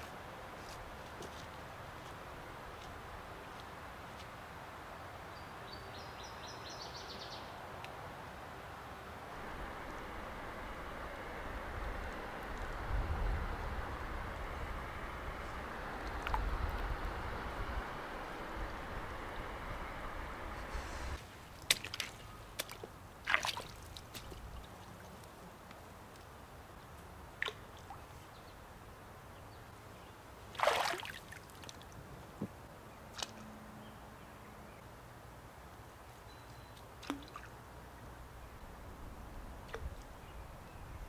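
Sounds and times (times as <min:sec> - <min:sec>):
water splashing in a creek: 0:07.7 - 0:29.2, 0:30.2 - 0:33.6, 0:36.8 - 0:38.3, 0:39.3 - 0:40.8
water dripping: 0:16.0 - 0:16.9, 0:36.8 - 0:37.6.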